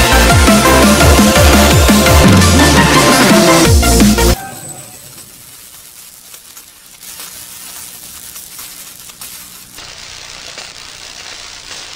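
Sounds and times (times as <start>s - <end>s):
electric spark crackling hiss: 3.6s - 11.9s.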